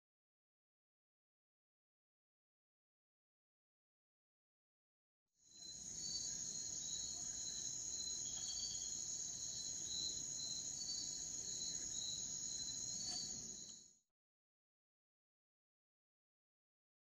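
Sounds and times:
crickets chirring: 5.5s - 13.9s
faint click: 13.0s - 13.9s.

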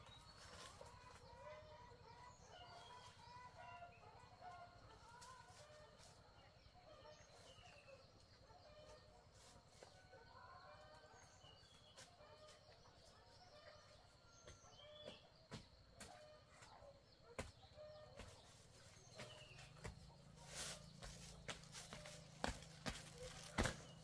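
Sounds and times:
faint bird chirps: 0.0s - 24.0s
footsteps: 14.4s - 24.0s.

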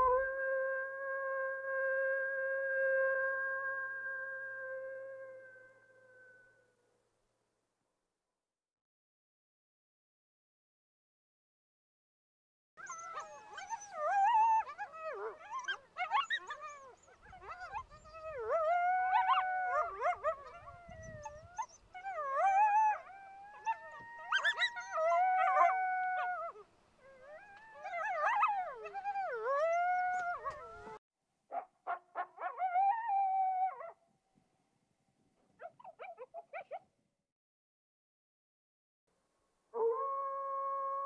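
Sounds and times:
coyotes howling and yipping: 12.8s - 31.0s, 31.9s - 34.0s.

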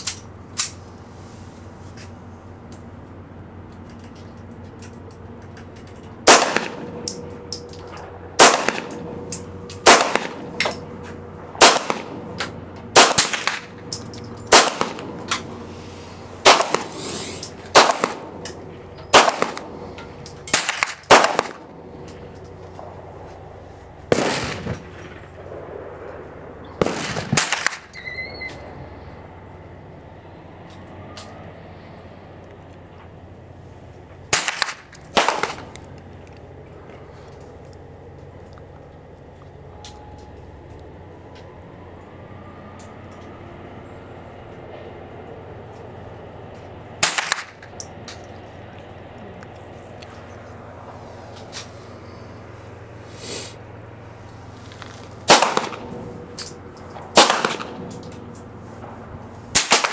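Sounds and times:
rifle shots with ringing: 6.2s - 15.6s, 16.4s - 17.0s, 17.7s - 23.2s, 24.1s - 28.4s, 34.3s - 35.8s, 47.0s - 47.6s, 55.2s - 58.2s, 59.5s - 59.9s.

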